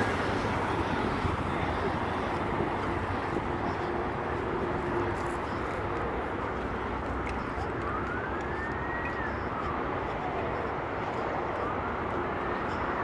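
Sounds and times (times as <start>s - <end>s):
vehicle running: 0.0s - 13.0s
faint whistle: 8.4s - 9.8s.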